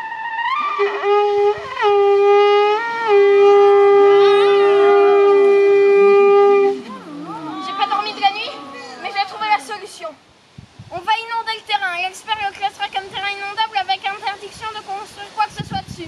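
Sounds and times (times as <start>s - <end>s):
small horn blasts: 0.0s - 6.9s.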